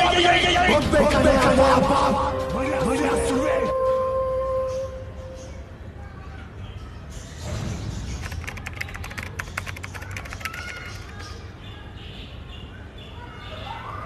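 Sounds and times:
typewriter clicks: 8.2s - 11.2s.

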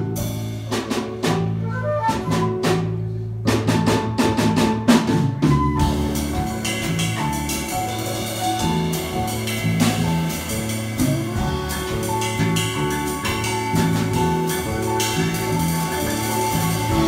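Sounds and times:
drum kit: 0.0s - 17.0s
electric bass: 0.0s - 17.0s
flute: 1.2s - 3.3s, 5.4s - 6.2s, 11.0s - 17.0s
keyboard: 4.9s - 17.0s.

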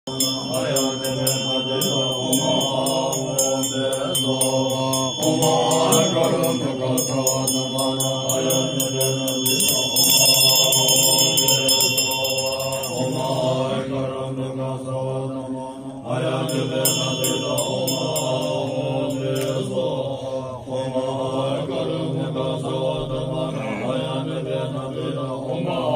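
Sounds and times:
hand bell ringing: 0.1s - 13.7s, 16.4s - 19.9s
monks chanting: 0.1s - 25.9s.

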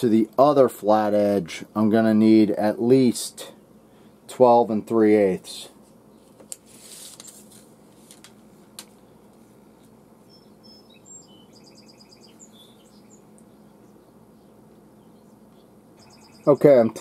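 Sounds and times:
low steady hum: 0.0s - 17.0s
rustling: 5.8s - 10.0s
faint bird chirps: 9.0s - 16.8s.

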